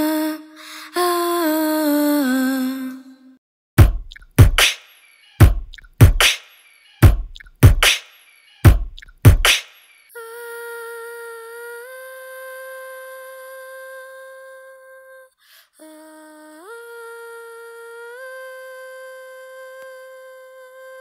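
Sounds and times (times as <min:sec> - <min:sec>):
woman beatboxing mouth-drum hits: 0:03.8 - 0:04.8, 0:05.4 - 0:06.4, 0:07.0 - 0:08.0, 0:08.7 - 0:09.6.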